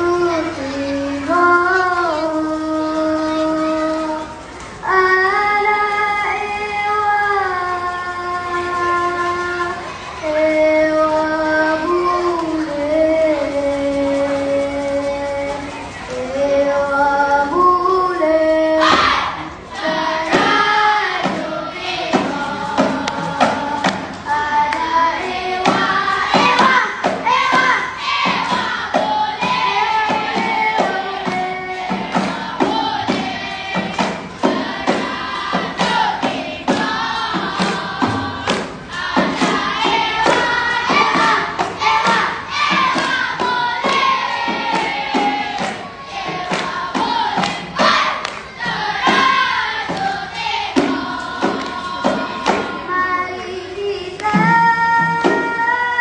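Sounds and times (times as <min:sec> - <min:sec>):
children singing in unison: 0:00.0 - 0:56.0
hand claps and body slaps: 0:47.4 - 0:48.5.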